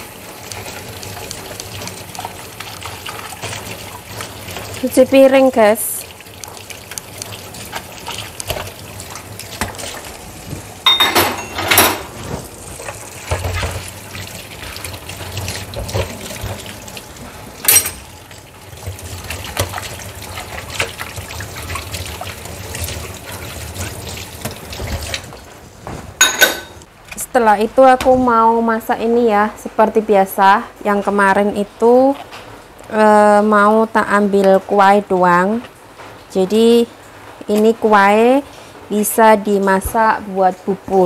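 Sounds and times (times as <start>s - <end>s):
tap water running into sink: 0.0s - 25.5s
dishes clattering: 10.8s - 13.8s, 17.6s - 18.1s, 26.2s - 26.9s.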